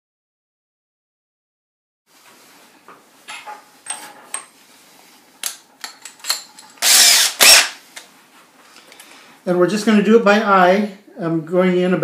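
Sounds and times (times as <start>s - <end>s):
tools clicking and tapping: 3.3s - 4.5s, 5.4s - 6.8s.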